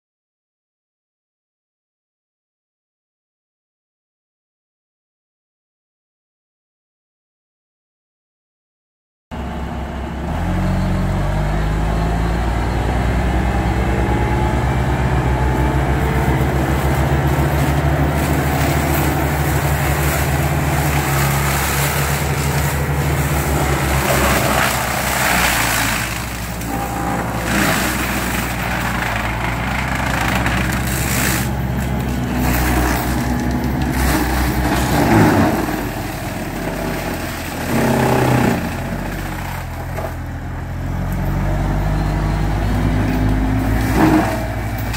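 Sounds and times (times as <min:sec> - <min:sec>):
diesel engine running under load: 0:09.3 - 0:44.9
mulcher crunching and shredding brush: 0:09.4 - 0:44.9.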